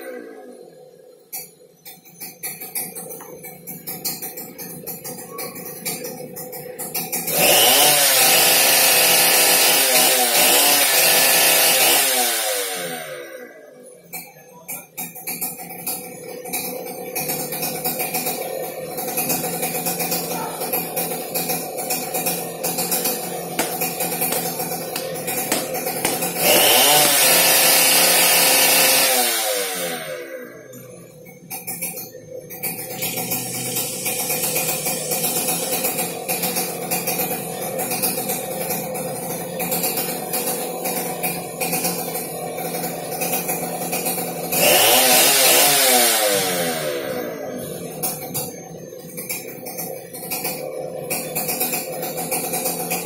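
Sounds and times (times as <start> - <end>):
chainsaw engine revving: 0.0 - 1.4, 2.5 - 14.2, 15.0 - 53.0.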